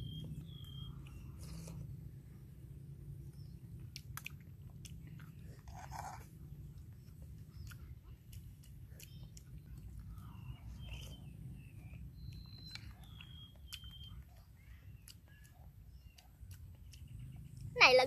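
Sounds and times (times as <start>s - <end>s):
person chewing: 0.1s - 17.7s.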